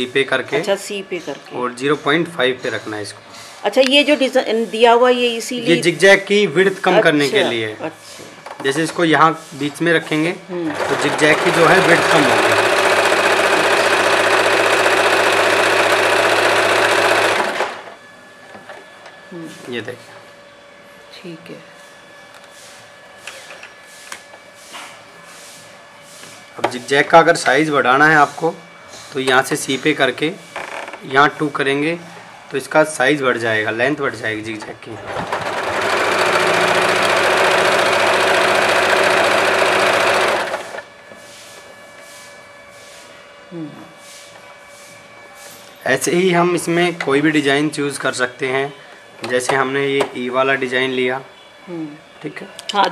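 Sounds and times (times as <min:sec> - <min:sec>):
sewing machine running: 0:10.7 - 0:18.0, 0:35.0 - 0:40.9.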